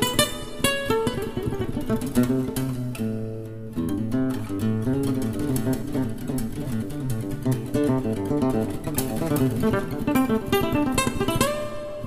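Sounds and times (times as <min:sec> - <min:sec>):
classical guitar fingerstyle: 0:00.0 - 0:12.0.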